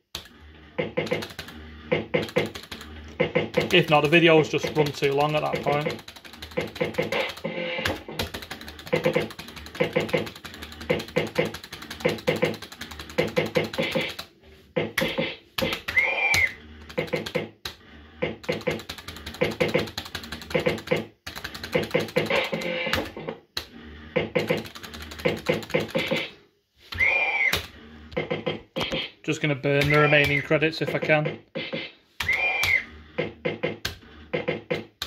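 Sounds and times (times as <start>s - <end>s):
slot machine reels clattering: 0.2s - 14.3s, 18.3s - 23.2s, 24.2s - 26.4s.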